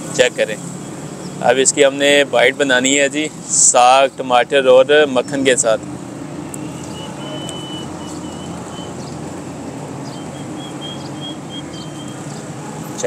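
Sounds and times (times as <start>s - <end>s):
low traffic hum: 0.0s - 13.0s.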